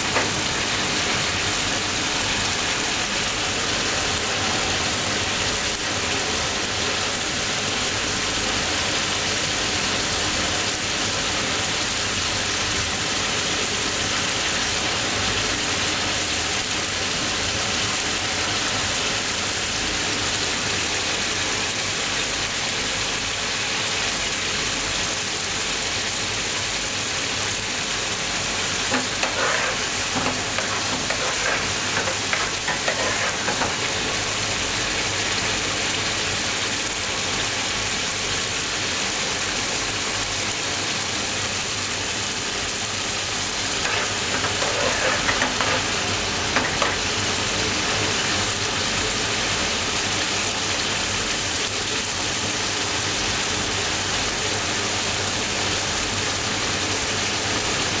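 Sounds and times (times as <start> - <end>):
curry sizzling in a pan: 0.0 - 58.0
utensil clattering and scraping: 28.9 - 34.2, 43.8 - 47.2.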